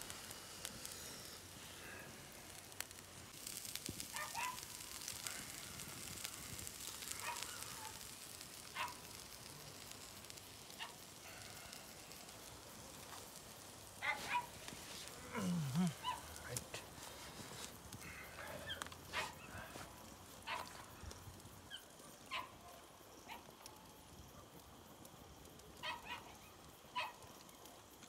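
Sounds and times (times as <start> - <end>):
campfire crackling: 0.0 - 28.0
dog barking: 4.1 - 4.6, 7.2 - 8.0, 8.8 - 9.0, 14.0 - 14.5, 16.0 - 16.2, 19.1 - 19.4, 20.5 - 20.8, 22.3 - 22.6, 25.8 - 26.4, 27.0 - 27.2.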